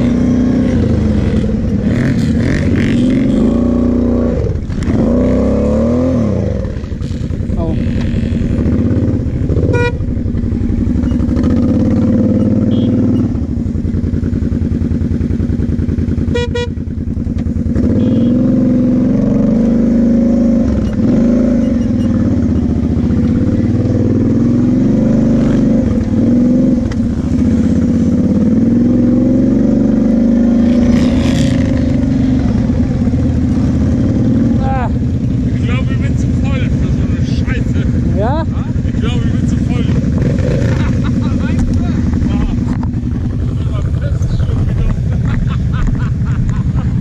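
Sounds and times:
quad engine revving: 0:00.0 - 0:13.5, 0:17.6 - 0:47.0
short beeps: 0:10.9 - 0:11.6, 0:12.3 - 0:13.4, 0:20.8 - 0:22.8.

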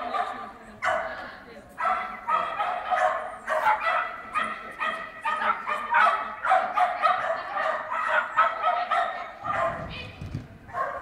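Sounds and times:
dog barking rapidly: 0:01.8 - 0:09.9, 0:10.7 - 0:11.0.

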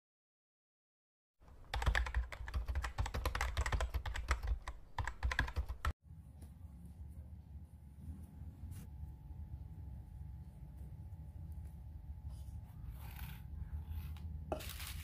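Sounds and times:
keyboard typing clicks: 0:01.7 - 0:05.9
faint low hum: 0:06.1 - 0:14.5.

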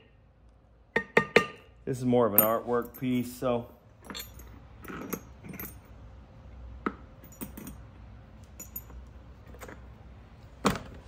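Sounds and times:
metal tools clinking on surface: 0:02.3 - 0:06.0, 0:07.2 - 0:09.9.

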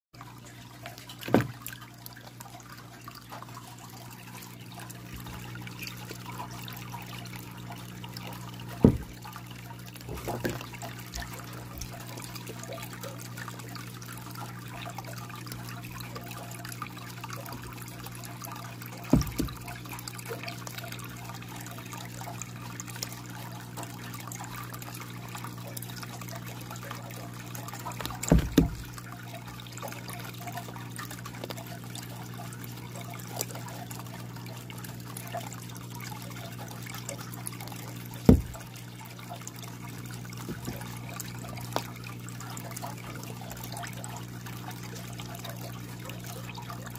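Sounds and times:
low steady hum: 0:00.2 - 0:46.9
water trickling: 0:00.2 - 0:46.9
sharp thumps: 0:08.8 - 0:09.2, 0:19.1 - 0:19.6, 0:28.0 - 0:28.9, 0:38.3 - 0:38.7.

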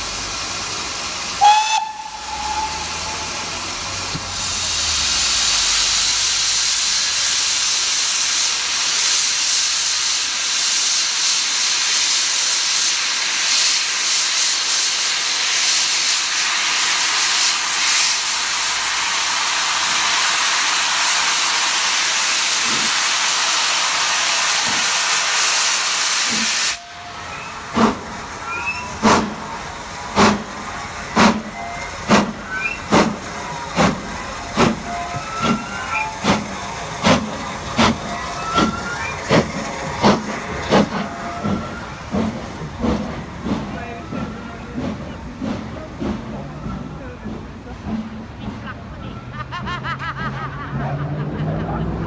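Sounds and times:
steam hissing: 0:00.0 - 0:48.7
steam locomotive whistle: 0:01.4 - 0:03.6, 0:26.5 - 0:27.7, 0:28.4 - 0:29.0, 0:34.6 - 0:36.4, 0:38.1 - 0:39.4.

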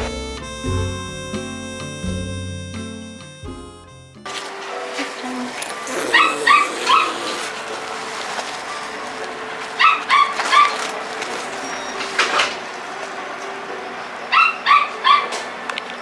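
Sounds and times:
cat yowling: 0:05.2 - 0:07.6.

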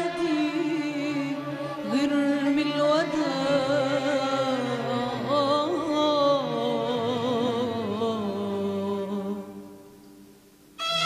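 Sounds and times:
woman singing with vibrato: 0:00.0 - 0:09.9.

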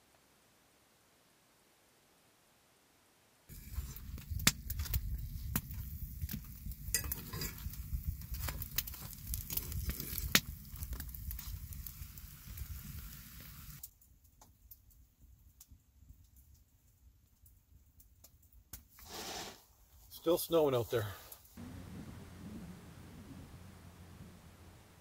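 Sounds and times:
batter sizzling in a pan: 0:03.5 - 0:13.8, 0:19.0 - 0:19.6.

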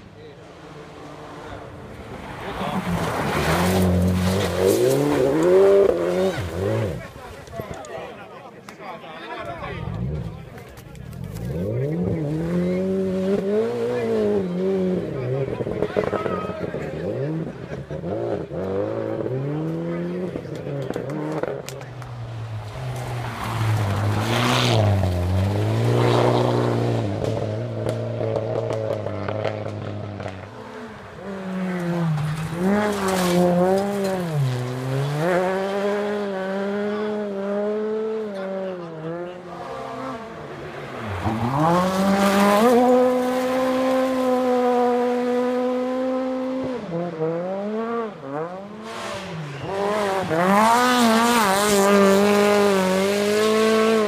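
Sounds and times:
rally car engines revving: 0:00.0 - 0:08.8, 0:09.4 - 0:54.0.

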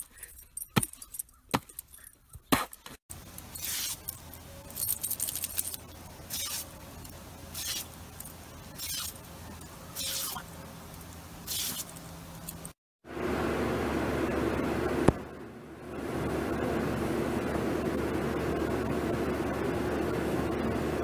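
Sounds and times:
low hum: 0:03.1 - 0:21.0
lawn sprinkler hissing in bursts: 0:03.2 - 0:04.1, 0:09.9 - 0:10.6, 0:11.4 - 0:12.2.

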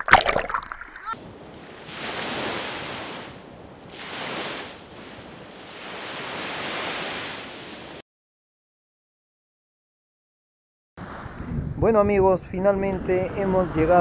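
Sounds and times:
surf breaking on sandy beach: 0:01.1 - 0:08.0.

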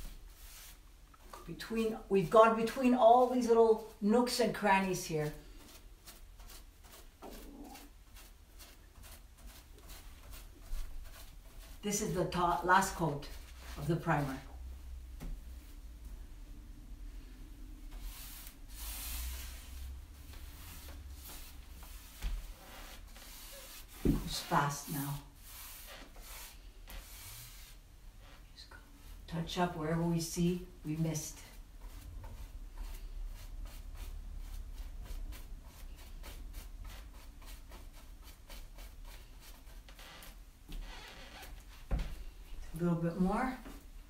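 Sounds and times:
paintbrush swishing strokes: 0:00.0 - 0:40.4.

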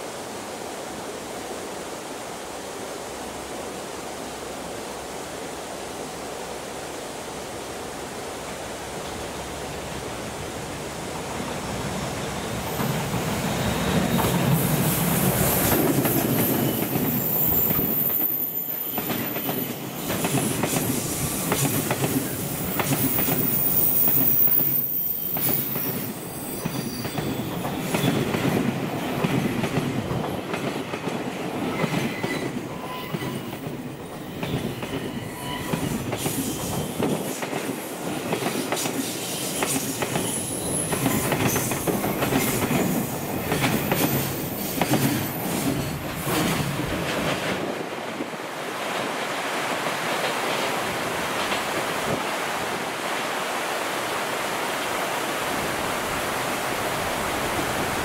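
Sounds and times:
freight train rolling past: 0:07.4 - 0:53.2
high wheel squeal: 0:16.4 - 0:20.2, 0:22.6 - 0:28.2, 0:34.3 - 0:36.9.

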